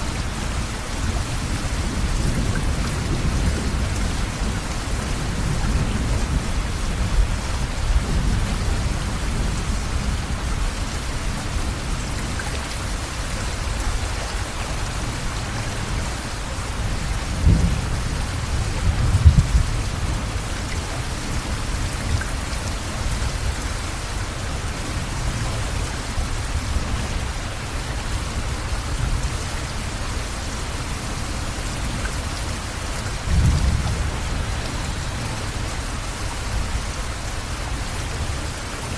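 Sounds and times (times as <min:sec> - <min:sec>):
floodwater rushing: 0:00.0 - 0:38.9
heavy rain: 0:00.0 - 0:38.9.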